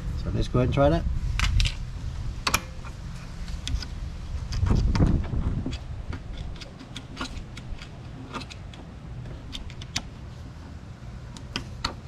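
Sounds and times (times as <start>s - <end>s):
metallic clicks and scrapes: 2.4s - 12.0s.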